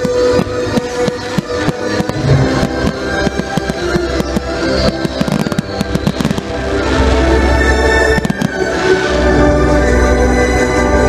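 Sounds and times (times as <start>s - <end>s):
fireworks bangs: 0.0s - 6.7s
fireworks crackling and popping: 0.0s - 9.0s
loud bass-heavy music: 2.0s - 4.8s.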